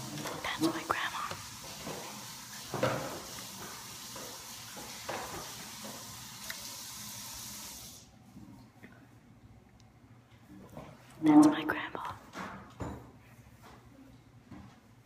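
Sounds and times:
water running from a tap: 0:01.2 - 0:08.1.

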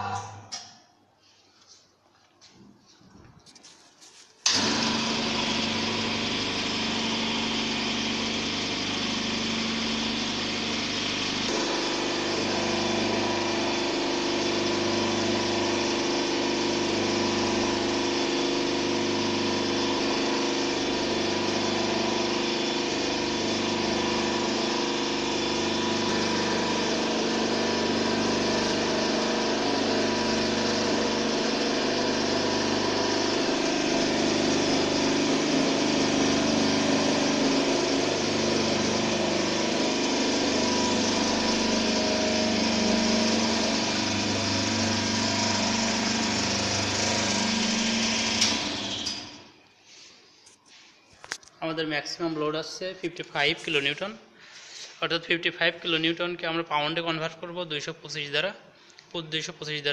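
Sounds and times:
hydraulic pump and motor running: 0:03.4 - 0:55.0.

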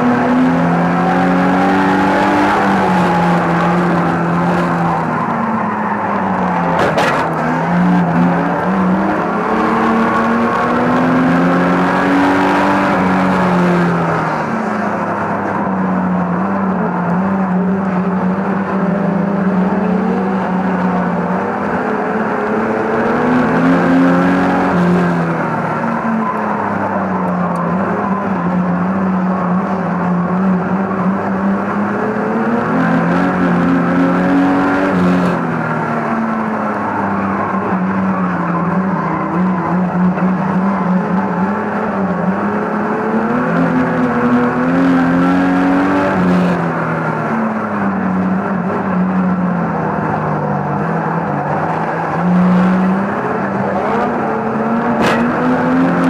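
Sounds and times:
racing car engine revving: 0:00.0 - 0:56.0.

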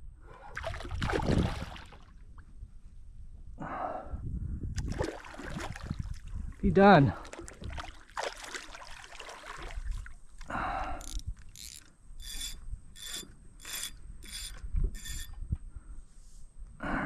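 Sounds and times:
mechanical ratchet bursts: 0:11.0 - 0:15.3.

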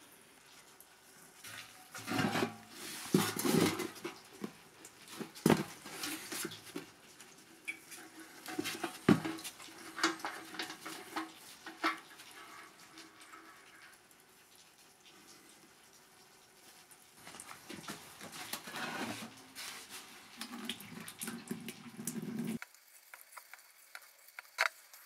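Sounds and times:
metal tank knocks and scrapes: 0:01.9 - 0:04.2, 0:08.1 - 0:12.8, 0:18.4 - 0:19.3.

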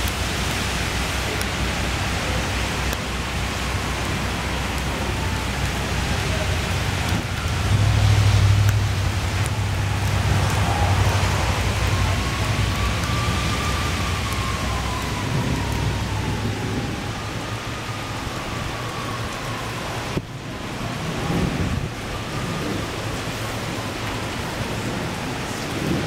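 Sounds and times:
heavy rain pouring: 0:00.0 - 0:26.0
low thunder rumble: 0:01.3 - 0:26.0.

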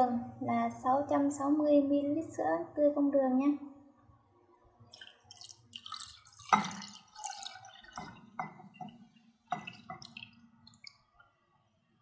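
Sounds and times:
milk pouring and splashing: 0:04.8 - 0:11.4.

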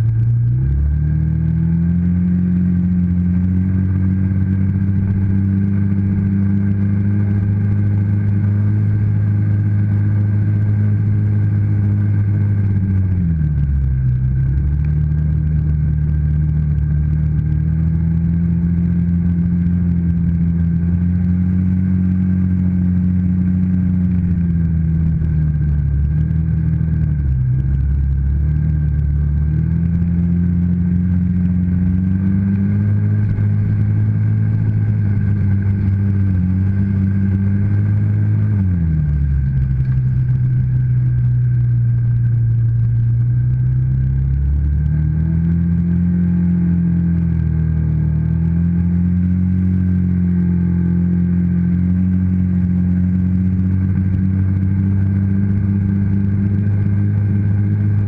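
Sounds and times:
atv engine running: 0:00.0 - 0:58.0.

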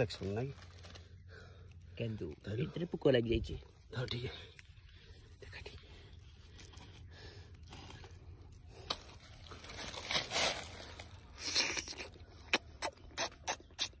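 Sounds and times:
fruit tearing: 0:00.1 - 0:02.9, 0:06.1 - 0:14.0
mouth clicks: 0:11.4 - 0:14.0.

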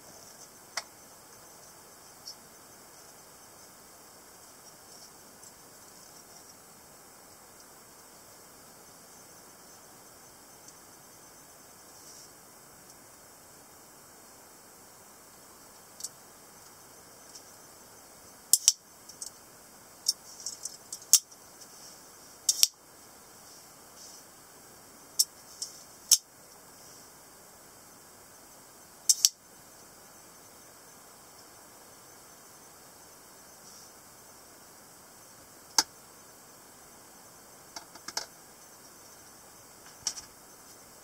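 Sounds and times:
pocket knife clicking: 0:29.1 - 0:29.3.

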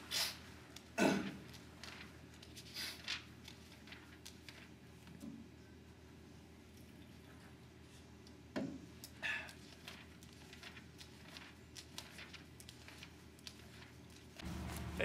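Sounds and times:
book pages turning: 0:00.8 - 0:05.2, 0:09.6 - 0:15.0.

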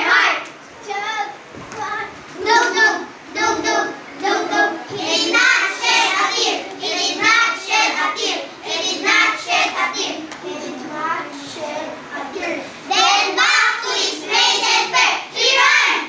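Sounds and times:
children chanting in unison: 0:02.4 - 0:12.0, 0:12.9 - 0:16.0.

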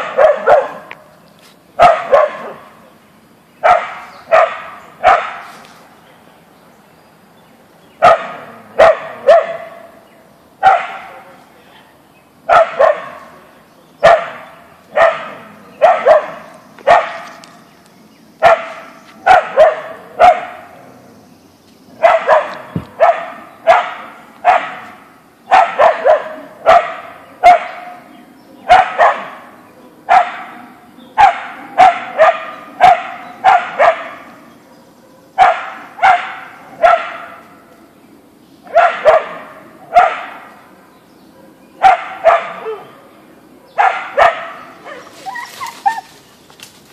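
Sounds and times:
dog barking: 0:00.0 - 0:00.9, 0:01.8 - 0:02.7, 0:03.6 - 0:05.5, 0:08.0 - 0:10.0, 0:10.6 - 0:11.3, 0:12.5 - 0:13.3, 0:14.0 - 0:17.3, 0:18.4 - 0:20.7, 0:22.0 - 0:28.0, 0:28.6 - 0:29.5, 0:30.1 - 0:30.6, 0:31.2 - 0:37.5, 0:38.7 - 0:40.6, 0:41.2 - 0:42.9, 0:43.6 - 0:45.1.

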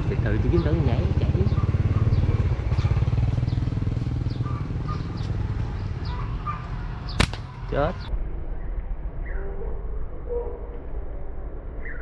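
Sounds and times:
motorbike engine running: 0:00.0 - 0:06.4.

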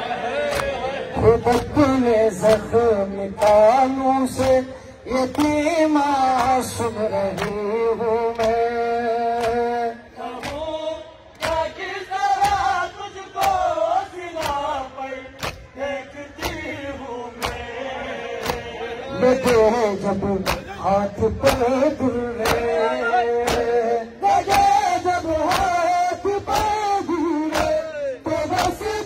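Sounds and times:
men chanting a lament: 0:00.0 - 0:29.0
chest beating slaps: 0:10.3 - 0:11.7, 0:12.4 - 0:12.8, 0:14.4 - 0:14.8, 0:15.4 - 0:15.8, 0:16.4 - 0:16.8, 0:20.4 - 0:20.8, 0:23.4 - 0:23.8, 0:25.4 - 0:25.9, 0:26.5 - 0:26.9, 0:27.5 - 0:27.8.

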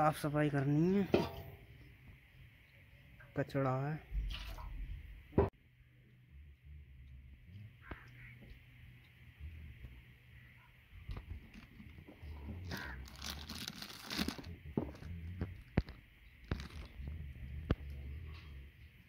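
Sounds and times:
plastic wrapping crinkling: 0:11.3 - 0:17.0.

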